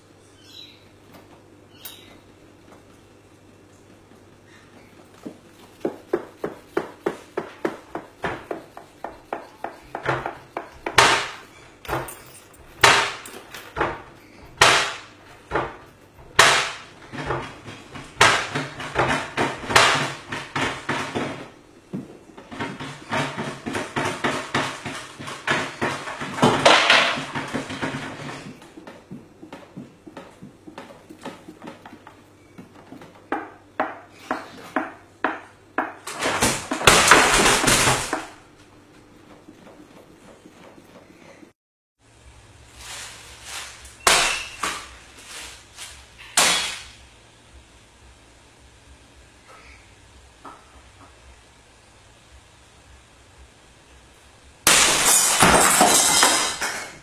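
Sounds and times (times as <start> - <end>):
wooden cabinet doors banging: 5.2 - 12.2, 12.8 - 38.4.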